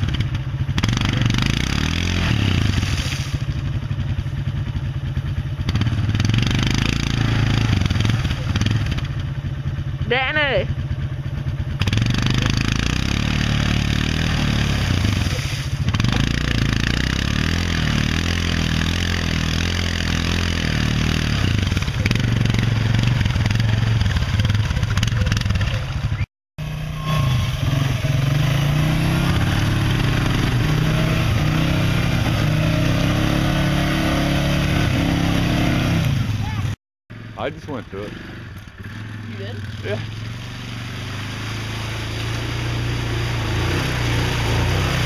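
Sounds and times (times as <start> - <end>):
atv engine under load: 0.0 - 45.0.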